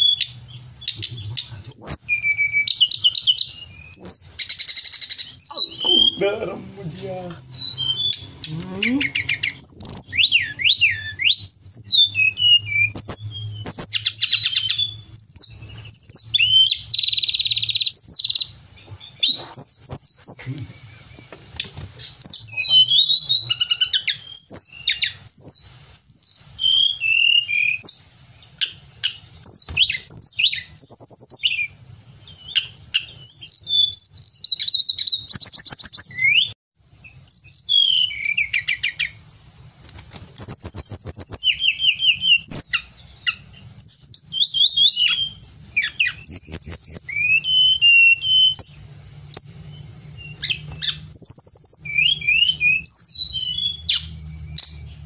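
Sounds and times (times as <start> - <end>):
bird singing whistled phrases: 0.0 - 6.4, 7.1 - 18.5, 22.2 - 31.8, 32.4 - 39.2, 40.4 - 49.6, 50.2 - 54.9.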